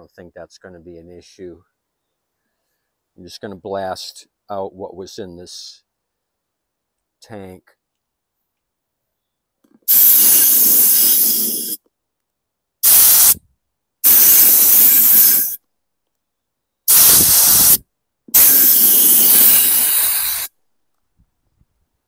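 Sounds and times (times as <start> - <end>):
compressed air blasts hissing: 9.8 - 11.8, 12.8 - 13.4, 14.0 - 15.6, 16.9 - 20.5.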